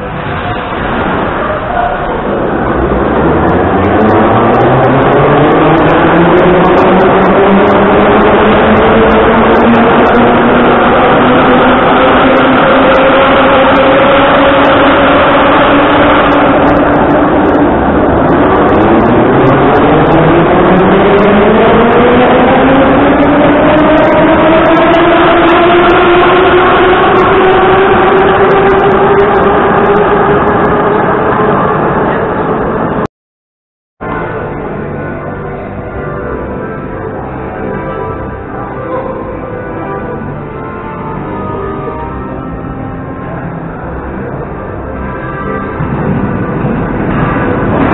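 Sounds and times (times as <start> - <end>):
electric traction motors whining: 0.0 - 33.0
music of sustained chords: 0.0 - 33.0, 34.0 - 47.9
wheels rumbling on rail: 0.0 - 33.1, 34.0 - 47.9.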